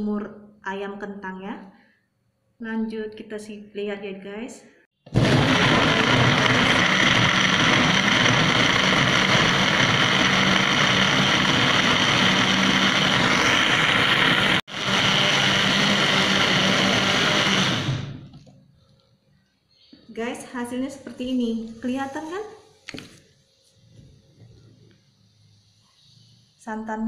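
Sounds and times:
blender motor whirring: 5.1 - 18.4.

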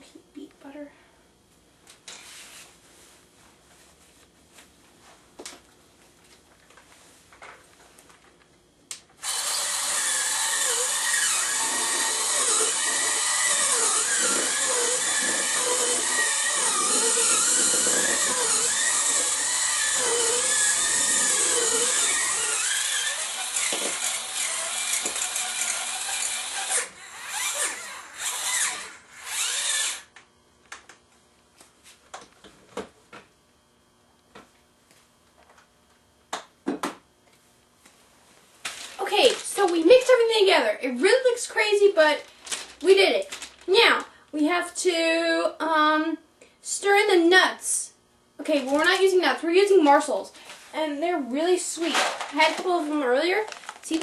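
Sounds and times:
electric mixer motor: 9.2 - 30.2.

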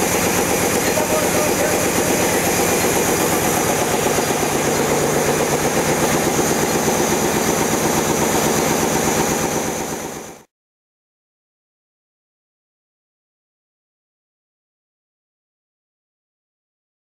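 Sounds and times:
reeling machines clattering: 0.0 - 10.4.

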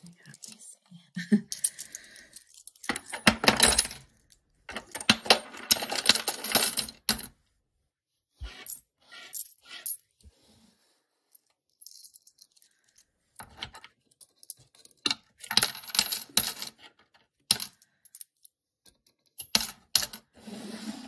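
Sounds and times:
coins clinking into wooden box: 1.5 - 7.3, 14.2 - 18.4.

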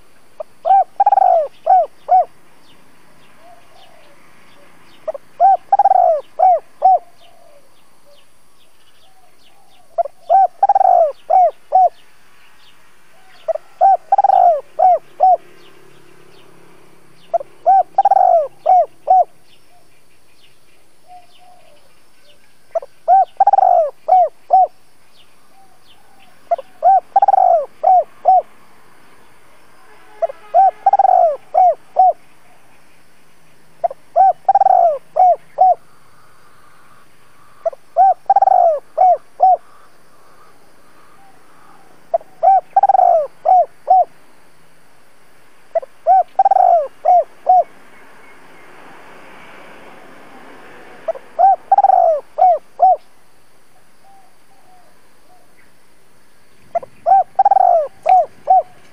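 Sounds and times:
dove cooing: 0.4 - 2.4, 3.4 - 8.2, 9.0 - 12.0, 13.1 - 15.6, 17.3 - 19.8, 21.0 - 24.8, 25.6 - 28.5, 30.1 - 32.2, 33.8 - 35.9, 36.6 - 44.2, 45.7 - 47.7, 51.0 - 53.1, 56.7 - 58.9.

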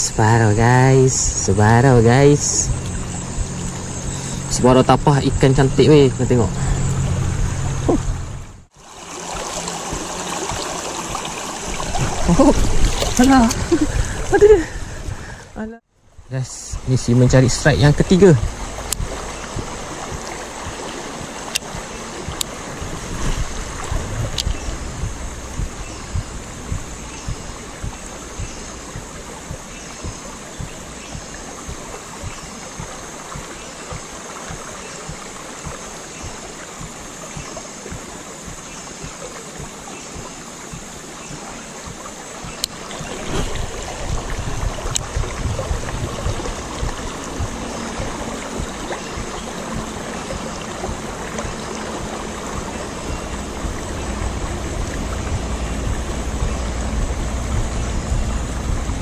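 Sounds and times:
river running over stones: 0.0 - 59.0
low rumble: 0.5 - 8.7, 16.1 - 33.6, 42.7 - 59.0
sharp clicks: 23.3 - 29.1.

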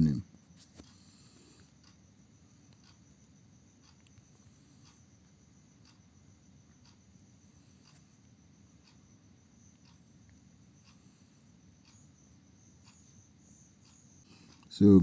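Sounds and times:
faint clicks: 2.7 - 3.0, 3.8 - 5.0, 13.8 - 14.8.

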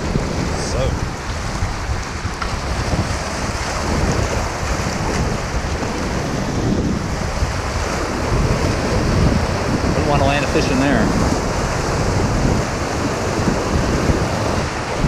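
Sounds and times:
whitewater rushing: 0.0 - 15.0
wind buffeting microphone: 0.0 - 15.0.

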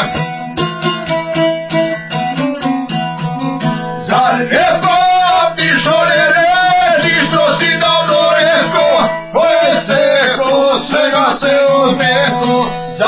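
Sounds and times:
lute picked notes: 0.0 - 13.0
man singing: 4.0 - 13.0.

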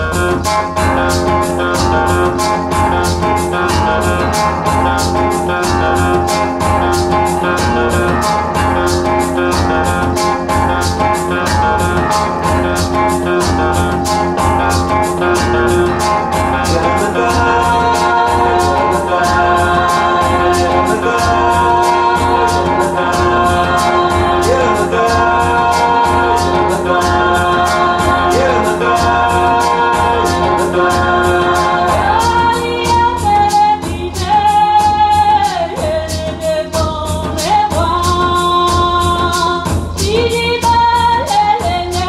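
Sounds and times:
rock music over loudspeakers: 0.0 - 32.6.

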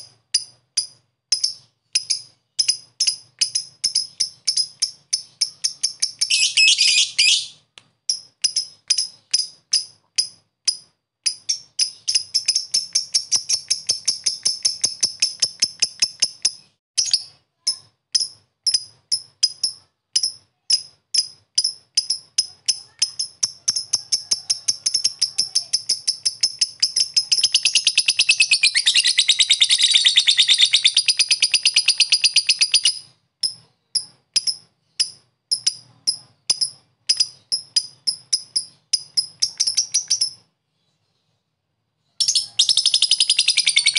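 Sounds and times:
lovebird ticking chirps: 0.0 - 40.5, 42.2 - 43.9
lovebird chattering trills: 1.4 - 7.6, 21.2 - 40.4, 42.2 - 43.9.

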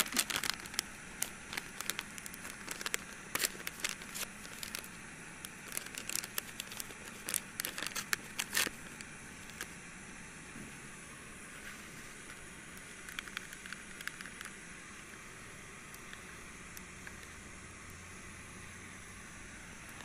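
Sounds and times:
paper packet crinkling and tearing: 0.0 - 9.7
gas stove hissing: 0.0 - 20.0.

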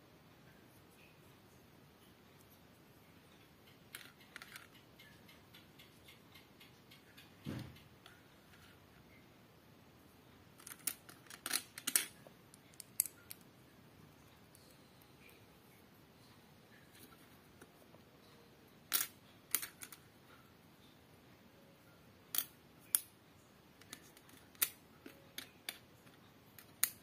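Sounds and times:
plastic bricks clicking: 3.8 - 5.1, 10.6 - 13.4, 18.9 - 20.0, 22.3 - 23.1, 23.8 - 27.0.

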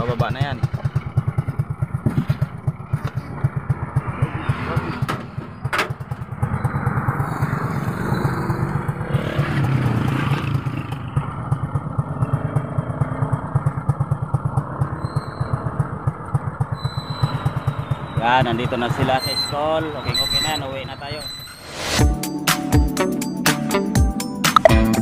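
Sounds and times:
motorcycle engine idling: 0.0 - 19.9.

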